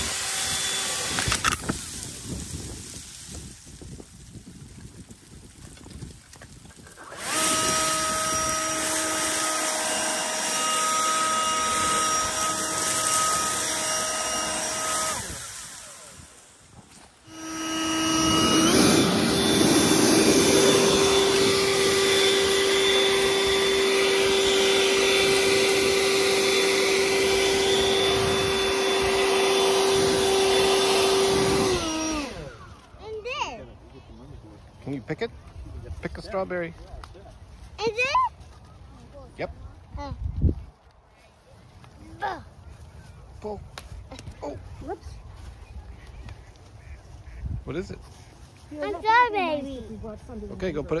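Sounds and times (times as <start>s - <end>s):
small motor whining: 0.0s - 5.0s, 5.7s - 33.6s.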